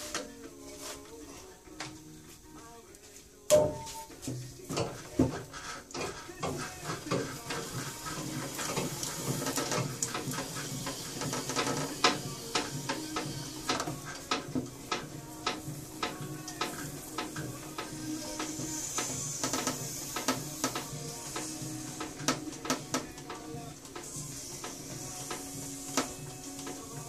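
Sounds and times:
clay thumping on wheel: 3.5s - 27.0s
electric potter's wheel hum: 6.1s - 27.0s.

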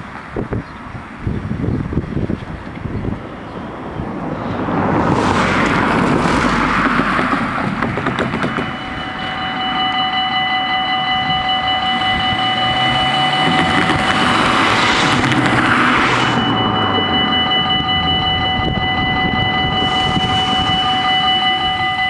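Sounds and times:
passing road traffic: 0.0s - 22.0s
level crossing warning bells: 5.4s - 22.0s.

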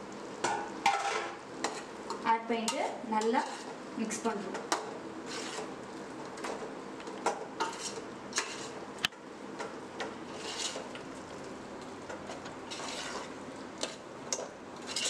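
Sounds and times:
metal spoon scraping pot: 2.6s - 3.7s, 5.2s - 5.7s, 7.6s - 8.8s, 10.3s - 10.9s, 12.7s - 13.3s.

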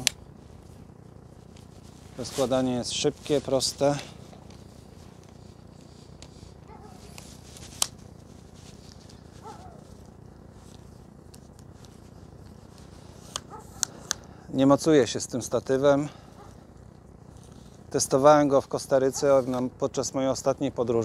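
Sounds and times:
low steady background noise: 0.0s - 21.0s
tripod leg clicks: 7.0s - 8.0s.

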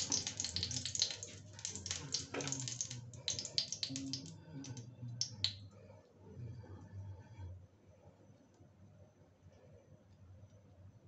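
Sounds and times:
hot oil crackling and popping: 0.0s - 5.6s.

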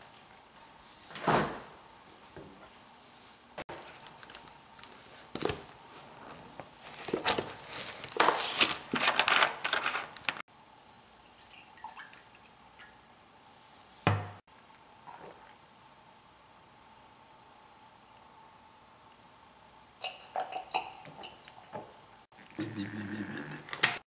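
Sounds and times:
soft drink pouring and fizzing: 11.0s - 13.3s, 14.7s - 15.7s.

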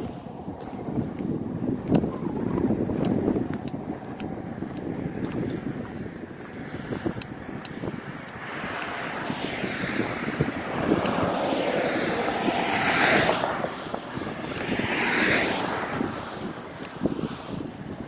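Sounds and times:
highway traffic passing: 0.0s - 18.0s
loud vehicle pass-bys: 0.0s - 18.0s
wind buffeting microphone: 0.0s - 18.0s.

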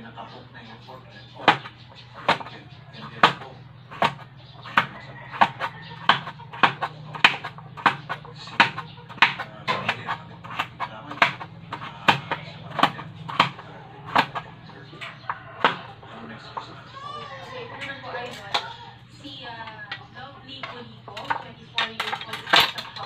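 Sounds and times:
knife chopping on cutting board: 1.4s - 14.5s, 15.6s - 16.0s.

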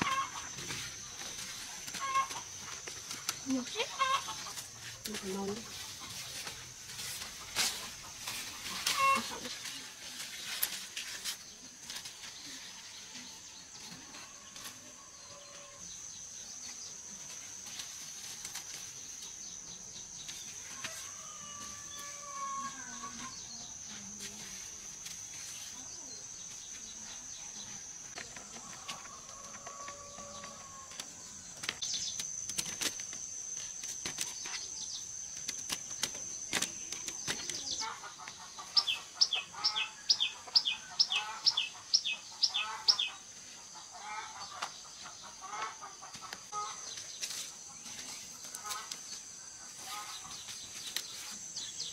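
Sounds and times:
leaves and vines crackling: 0.0s - 15.0s, 28.0s - 40.3s, 46.1s - 51.9s.

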